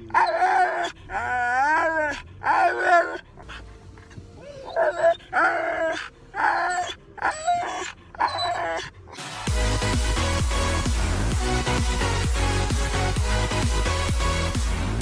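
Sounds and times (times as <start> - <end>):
dog whining and yowling: 0.0 - 9.2
electronic dance music: 9.2 - 15.0.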